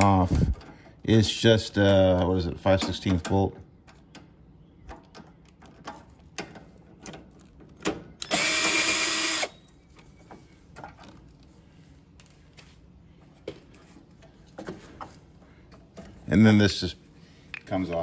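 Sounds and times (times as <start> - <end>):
clicks and knocks of tools: 1.8 - 8.3
cordless drill running: 8.2 - 9.6.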